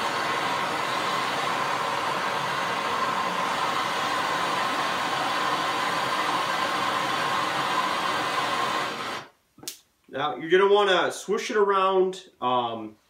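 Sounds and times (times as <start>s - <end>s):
gas torch flame hissing: 0.0s - 9.3s.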